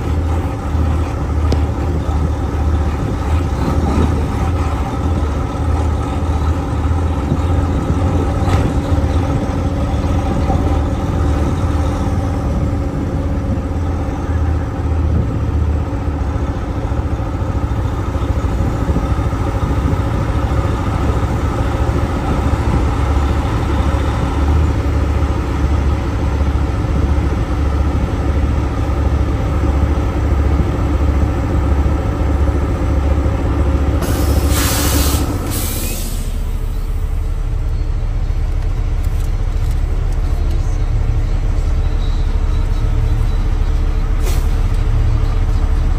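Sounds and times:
diesel engine rumbling: 0.0s - 45.9s.

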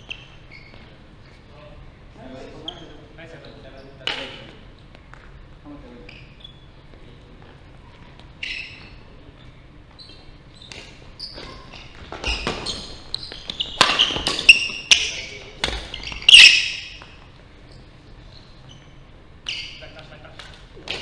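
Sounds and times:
shoes squeaking on wooden floor: 0.0s - 1.5s, 2.5s - 19.9s
racket striking shuttlecock: 13.4s - 15.9s.

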